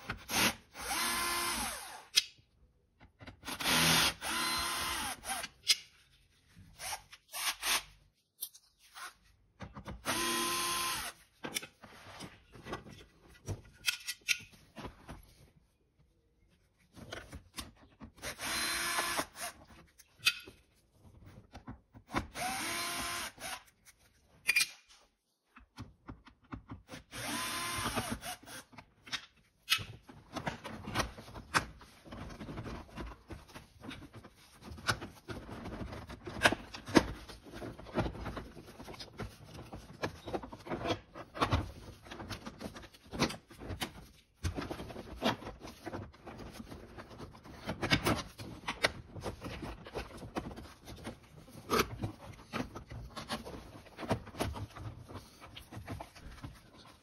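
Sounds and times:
cordless drill running: 0.3 - 2.1, 3.5 - 5.5, 10.0 - 11.2, 18.2 - 19.5, 22.4 - 23.6, 27.1 - 28.7
clicks knocks and plastic rubbing: 25.5 - 26.9.

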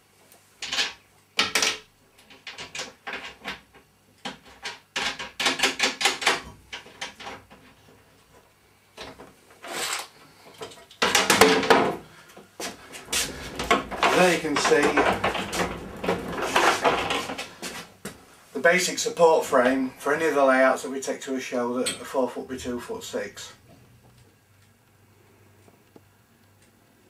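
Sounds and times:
metal frame scraping clatter: 13.0 - 17.8.

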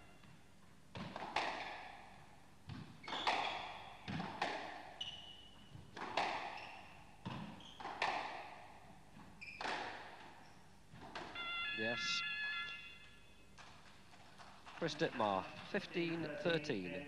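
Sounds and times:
shoes squeaking on court floor: 2.7 - 4.1, 4.9 - 8.2, 9.1 - 11.7.

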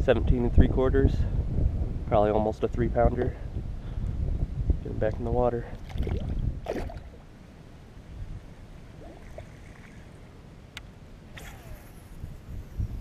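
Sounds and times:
wind: 0.0 - 13.0
water noise: 4.8 - 13.0.

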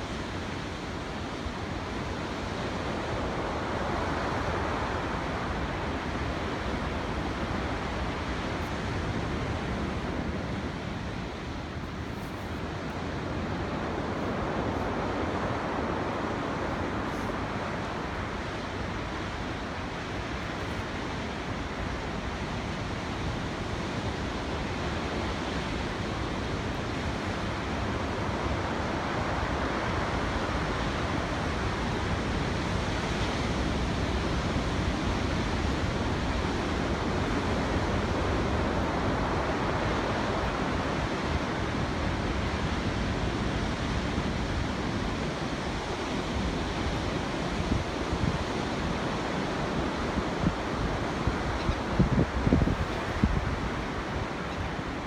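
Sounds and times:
sea surf rushing: 0.0 - 55.0
wind buffeting microphone: 46.5 - 55.0.

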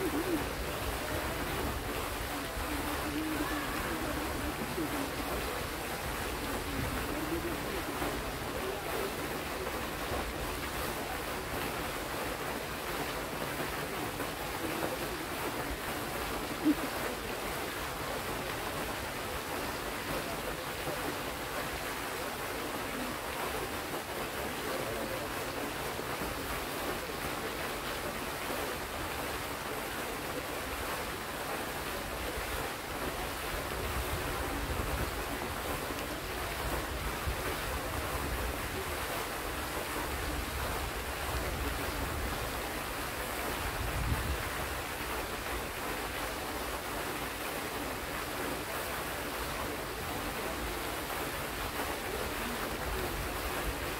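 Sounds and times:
fountain water splashing: 0.0 - 53.9
wind rumble on microphone: 43.6 - 44.8.

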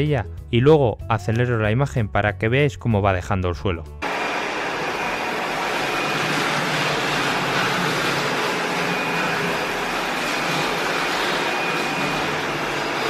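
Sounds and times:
robot vacuum humming: 4.0 - 13.0.

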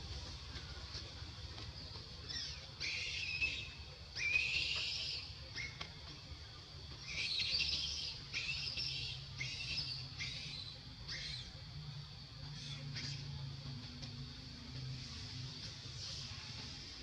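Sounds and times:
squeaky chirping calls: 2.3 - 5.8, 7.0 - 11.6.

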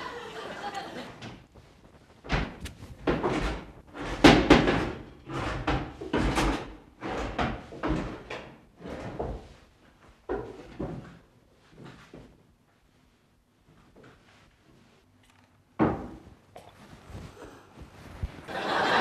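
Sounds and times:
cupboard doors and drawers banging: 2.2 - 9.4, 15.8 - 16.4.

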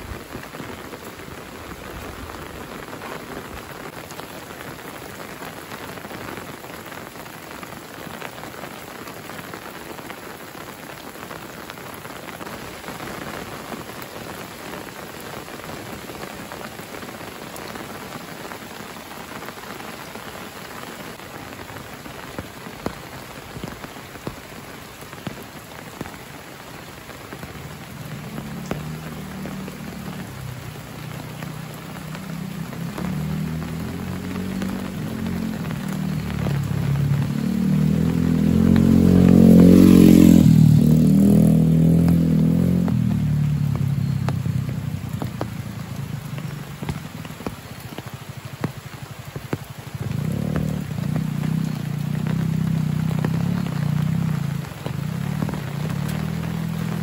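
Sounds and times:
rain on foliage: 0.0 - 57.0
single raindrops landing close: 15.5 - 57.0.

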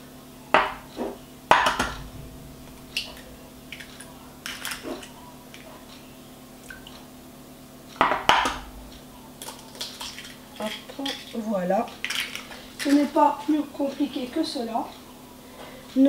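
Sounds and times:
eggs cracking on metal bowl: 1.5 - 2.0, 3.0 - 5.7, 8.0 - 13.0
loud knocks: 1.5 - 5.1, 8.0 - 8.9.

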